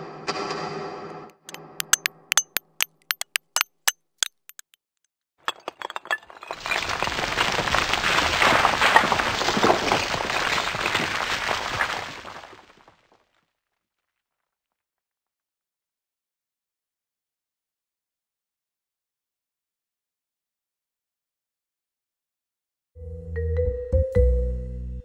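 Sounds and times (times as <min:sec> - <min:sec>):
sharp cracks and clinks: 0:01.3 - 0:04.8, 0:05.5 - 0:07.9
falling debris crumbling: 0:05.5 - 0:12.9.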